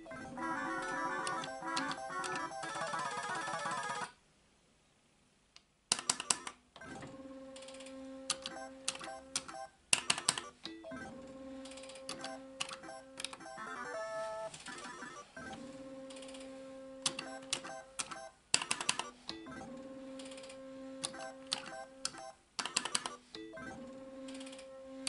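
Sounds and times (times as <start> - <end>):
slot machine lever and button clicks: 0.8 - 2.7, 5.9 - 6.6, 17.0 - 19.1, 20.2 - 23.2.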